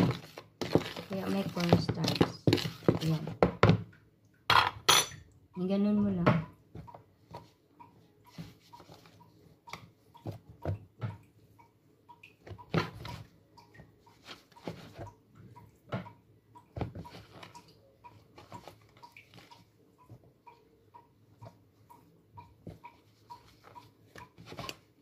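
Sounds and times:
meat patted in flour: 0.0s - 3.9s.

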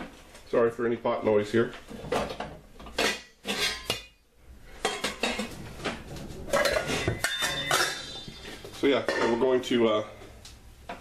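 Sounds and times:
metal pot clanking on stove: 6.5s - 9.4s.

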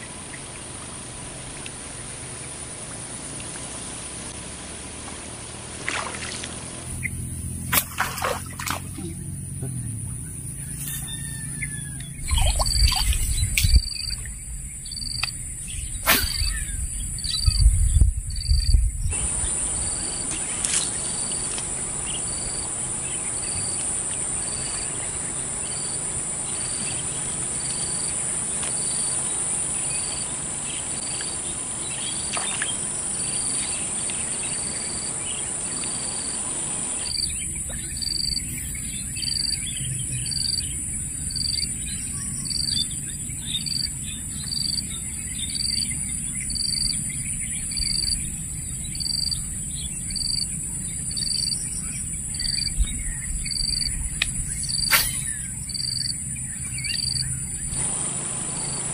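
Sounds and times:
insect chorus buzzing: 5.3s - 58.9s
low rumbling bursts: 6.8s - 20.0s
short insect chirp: 6.9s - 58.9s
sharp knock: 54.9s - 55.3s.

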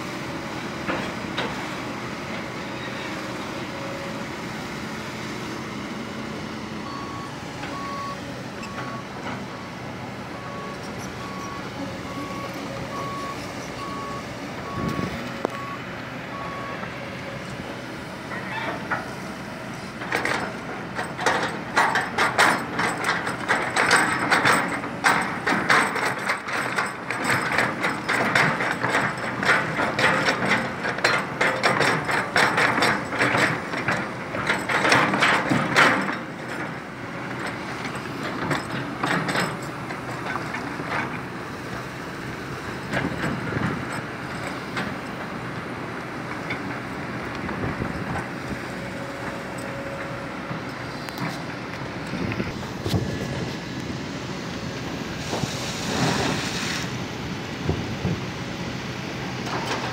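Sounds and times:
excavator diesel engine running: 0.0s - 59.9s
travel alarm beeping: 6.8s - 9.1s, 10.4s - 16.9s
dense metallic clatter: 20.0s - 36.8s.

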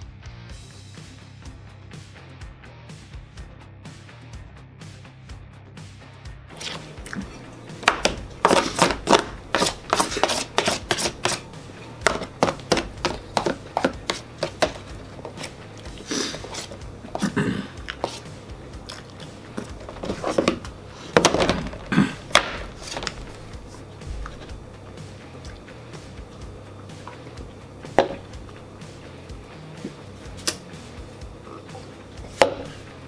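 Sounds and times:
spoon scraping foil pan: 8.0s - 18.4s, 19.1s - 21.6s, 22.7s - 23.2s.

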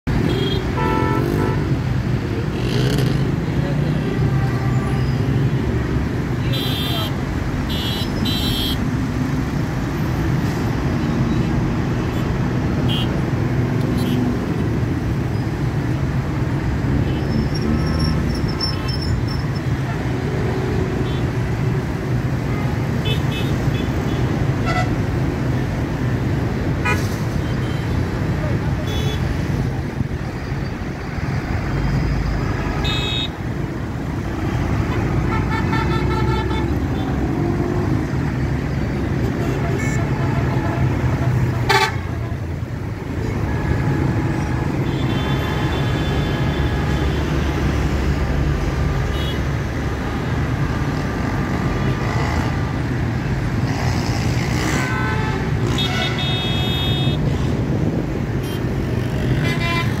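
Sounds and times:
traffic engines rumbling: 0.0s - 60.0s
car horns honking: 0.2s - 1.7s, 39.4s - 42.3s, 54.7s - 57.2s.

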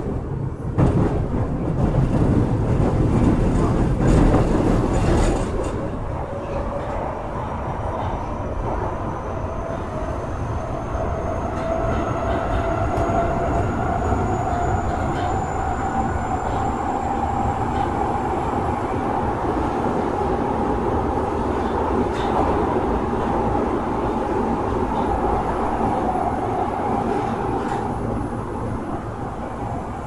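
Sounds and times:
wheel and rail rumbling: 0.0s - 30.0s.

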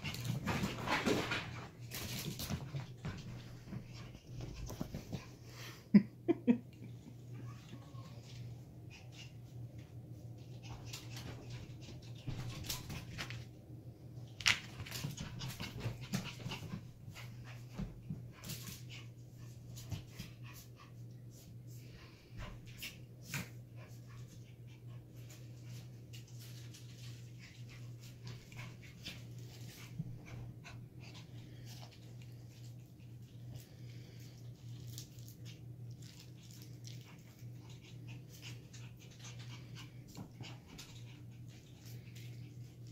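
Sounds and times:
puppies scuffling and breathing: 0.0s - 6.0s, 7.3s - 42.9s
steady low hum: 0.0s - 42.9s.

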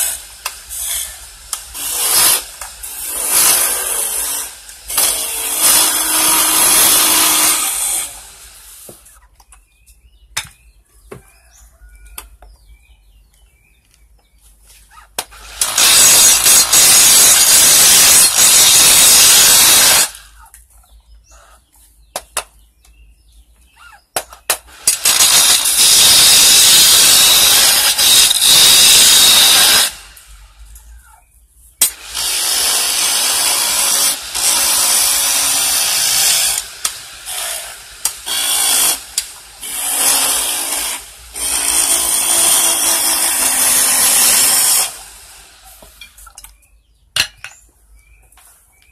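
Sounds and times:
chisel cutting spinning wood: 15.3s - 20.2s, 24.7s - 30.0s, 31.9s - 45.9s.

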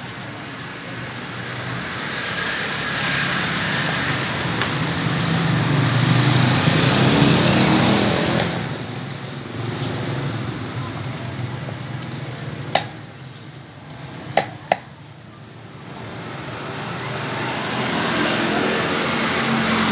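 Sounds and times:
motor vehicle passing: 2.0s - 10.8s, 15.9s - 19.9s.

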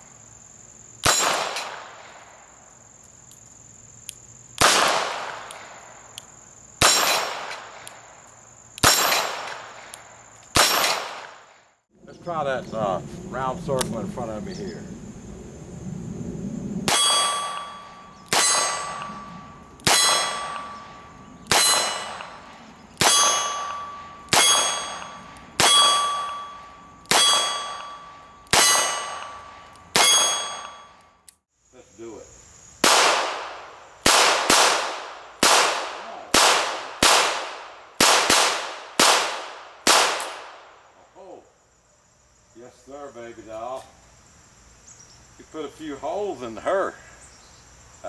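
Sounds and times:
revolver gunshots: 1.0s - 2.2s, 4.6s - 5.8s, 6.8s - 7.8s, 8.8s - 11.6s, 16.8s - 31.0s, 32.8s - 40.7s
steel target ringing: 16.9s - 31.0s.

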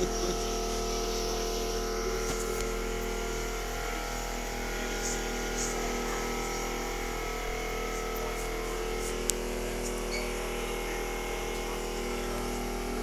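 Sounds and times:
steady electric buzz: 0.0s - 13.0s.

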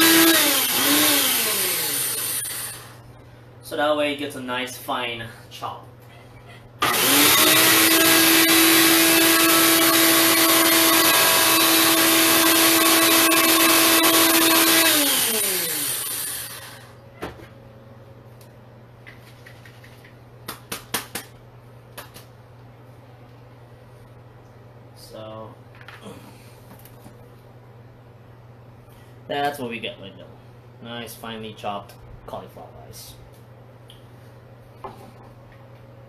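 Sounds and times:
blender motor whine: 0.0s - 3.0s, 6.8s - 17.0s.

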